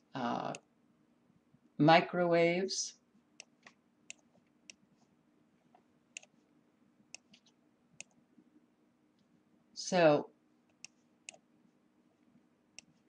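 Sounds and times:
low steady hum: 0.0s - 13.0s
computer mouse clicks: 3.4s - 4.8s, 6.2s - 6.4s, 7.1s - 8.2s, 10.7s - 11.4s, 12.8s - 13.0s.

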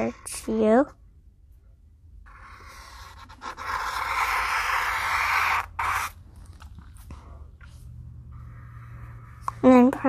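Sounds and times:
marker scratching on paper: 2.3s - 6.7s.

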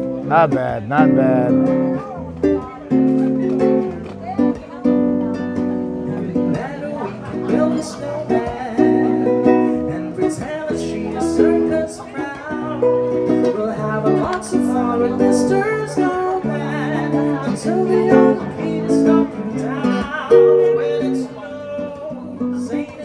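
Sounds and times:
strummed acoustic guitar: 0.0s - 23.0s
man singing: 0.2s - 1.7s, 6.2s - 23.0s.

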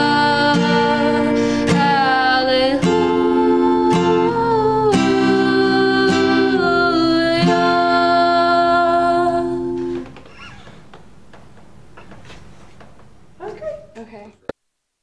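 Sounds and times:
acoustic guitar strummed: 0.0s - 10.2s.

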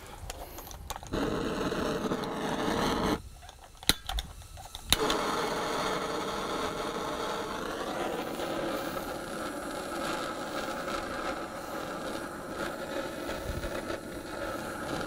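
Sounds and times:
gas torch hissing: 0.0s - 15.0s
igniter clicks: 3.4s - 5.3s.

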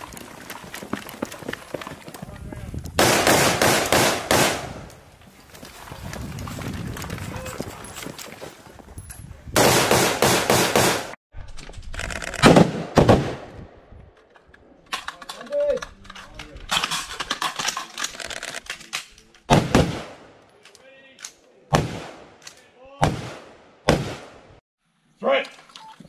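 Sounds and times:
rapid rifle shots: 3.0s - 4.7s, 9.6s - 11.2s
single rifle shots: 3.0s - 4.9s, 12.4s - 13.6s, 21.7s - 22.4s, 23.0s - 24.5s.

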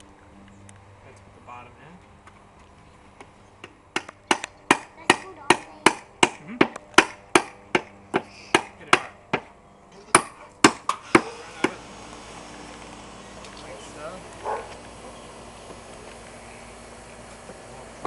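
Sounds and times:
hammer knocking nails into wood: 3.6s - 9.5s.

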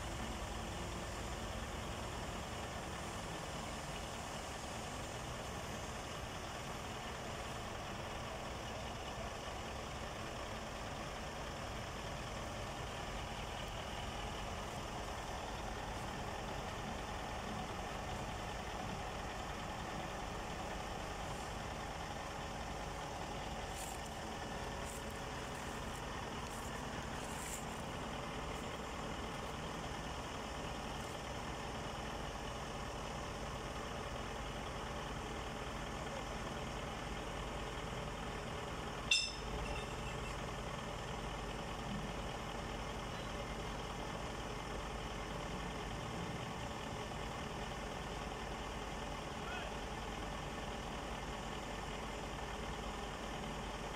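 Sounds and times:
heavy diesel engine running: 0.0s - 53.9s
high metallic clinks: 39.1s - 40.0s.

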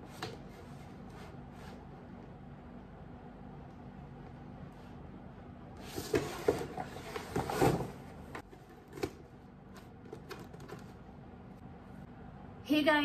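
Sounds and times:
cardboard rustling: 5.8s - 11.0s.

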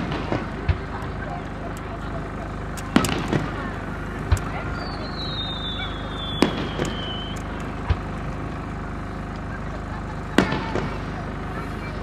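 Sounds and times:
firework bangs: 0.0s - 9.3s, 9.9s - 12.0s
firework whistle falling in pitch: 4.8s - 7.4s.

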